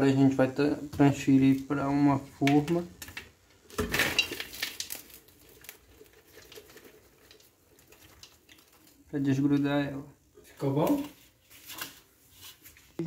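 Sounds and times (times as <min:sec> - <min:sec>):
popcorn rattling onto metal tray: 0:02.5 - 0:09.8
popcorn pieces ticking and rustling: 0:02.5 - 0:12.1.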